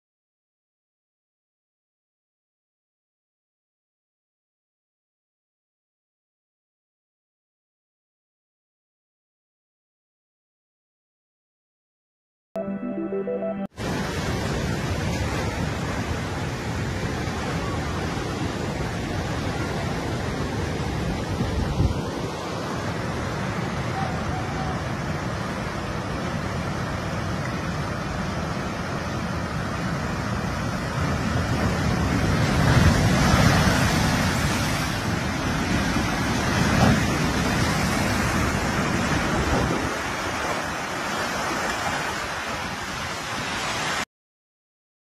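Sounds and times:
wind rumbling on microphone: 13.8 - 43.6
floodwater rushing: 13.8 - 44.0
waves crashing over seawall: 13.8 - 44.1.

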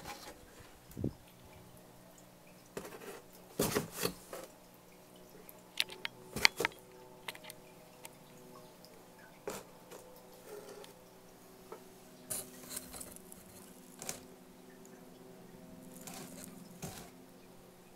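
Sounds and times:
faint steady hum: 0.0 - 17.9
cat scraping cardboard box: 16.0 - 17.1.

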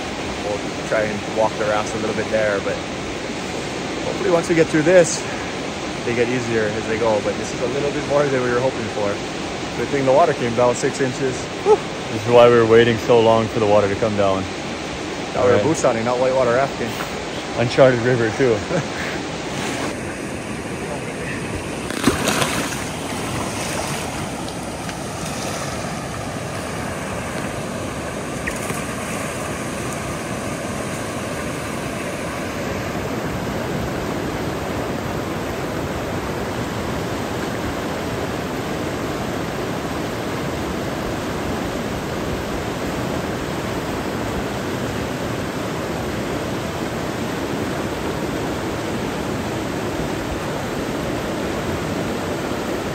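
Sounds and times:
river rushing through rapids: 13.6 - 52.9.

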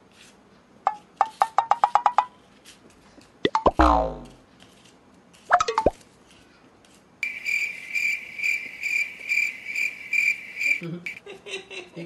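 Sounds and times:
cricket chirping: 7.2 - 11.2.

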